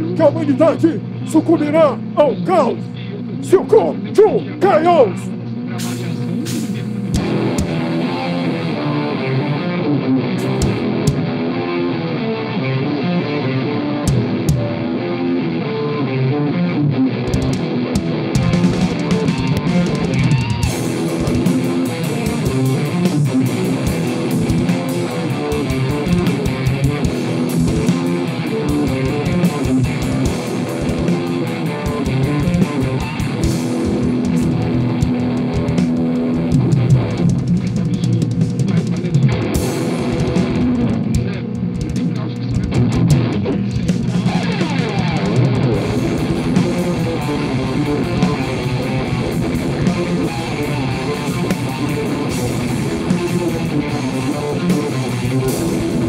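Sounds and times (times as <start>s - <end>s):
busy drumming: 0.0s - 2.8s, 6.5s - 8.0s, 17.4s - 56.0s
electric guitar: 0.0s - 56.0s.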